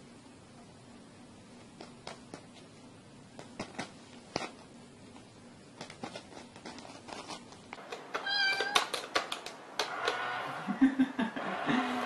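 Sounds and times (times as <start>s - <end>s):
cat meowing: 8.2s - 8.9s.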